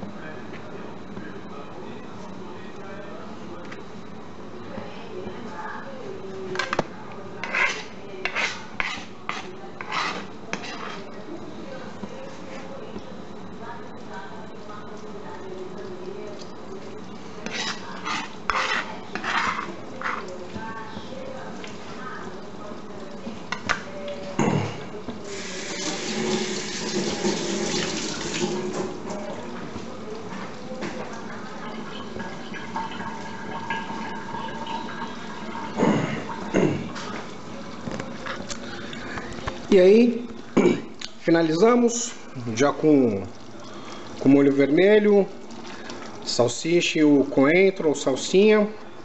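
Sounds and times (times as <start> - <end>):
utensil scraping cookware: 7.4 - 11.2, 17.4 - 20.3
water running from a tap: 25.3 - 29.4, 31.1 - 38.0.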